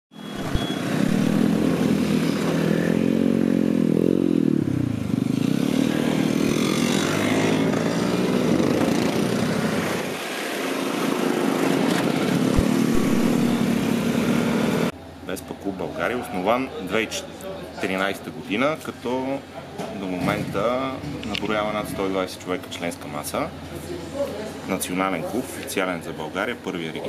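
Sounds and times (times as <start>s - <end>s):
scooter engine passing close: 0.2s - 14.9s
scooters riding past: 0.6s - 14.9s.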